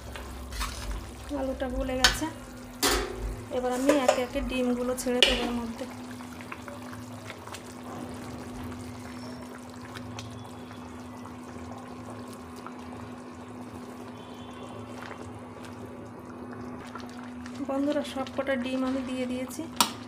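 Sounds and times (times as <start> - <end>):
steady low hum: 0.0 - 6.2
gravy simmering: 0.0 - 20.0.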